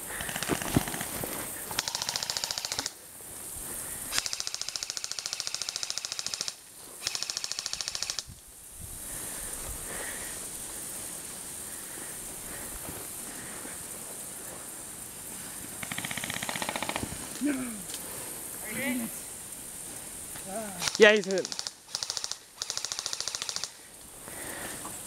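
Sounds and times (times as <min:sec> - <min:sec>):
airsoft rifle full-auto fire: 0:01.7 - 0:03.0, 0:04.1 - 0:08.3, 0:20.8 - 0:23.8.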